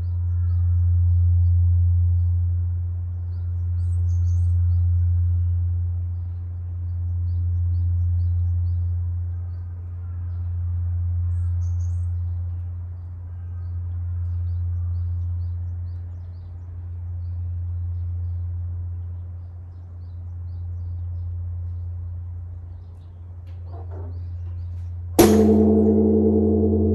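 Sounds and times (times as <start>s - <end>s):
temple bell humming: 25.2s - 26.9s.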